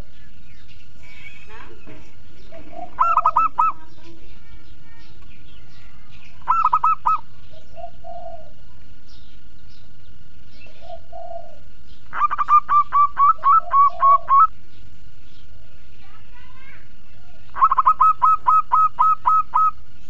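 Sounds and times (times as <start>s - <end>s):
dove cooing: 1.1s - 9.2s, 10.5s - 14.6s, 17.0s - 19.9s.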